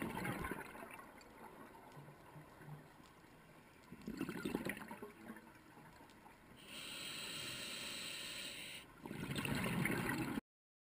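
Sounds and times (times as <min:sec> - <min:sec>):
regulator inhale hiss: 0:06.6 - 0:08.9.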